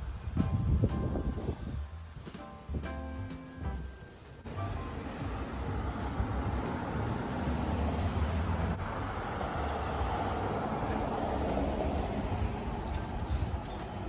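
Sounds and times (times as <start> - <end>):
traffic rumble: 0.0 - 14.0
vehicle passing: 3.8 - 14.0.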